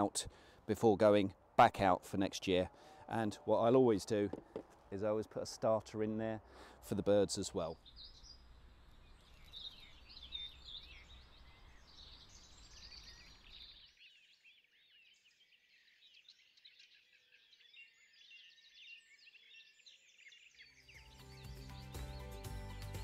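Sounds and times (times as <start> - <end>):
small birds chirping: 6.5 - 23.0.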